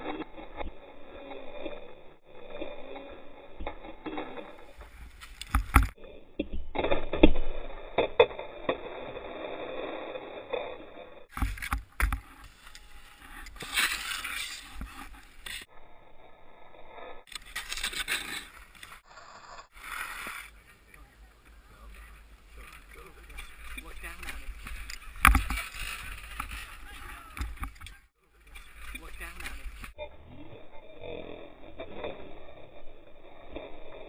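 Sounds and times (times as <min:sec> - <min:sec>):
skis scraping over snow: 0:11.3 - 0:15.7, 0:17.3 - 0:30.0.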